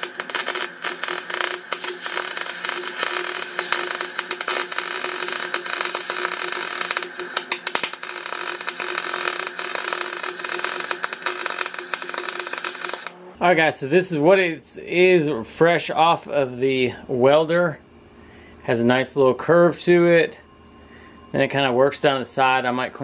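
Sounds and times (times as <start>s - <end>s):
welder arc crackling sizzle: 0.0s - 13.2s
steady hum: 0.0s - 23.0s.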